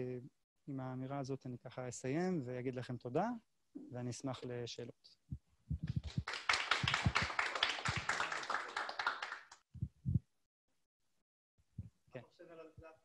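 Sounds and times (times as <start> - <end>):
audience applauding: 5.9 - 9.6.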